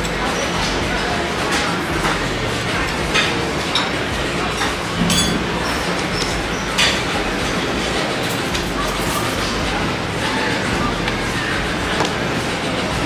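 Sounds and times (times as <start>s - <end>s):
restaurant background din: 0.0s - 13.0s
tableware clinking: 3.1s - 7.2s.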